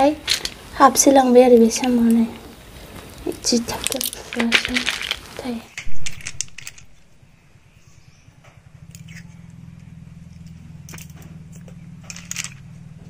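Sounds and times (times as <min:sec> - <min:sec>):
steady low hum: 0:00.0 - 0:13.0
snail shells clicking: 0:01.8 - 0:07.1.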